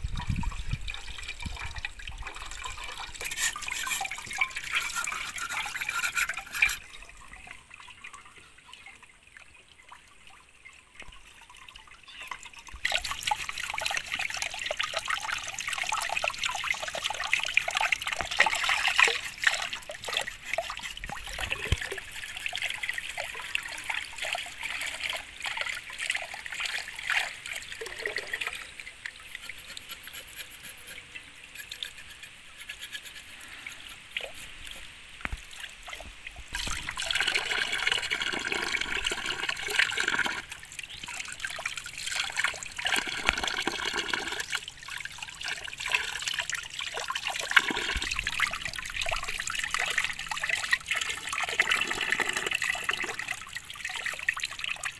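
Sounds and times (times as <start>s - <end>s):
water trickling from bamboo spout: 0.0s - 54.9s.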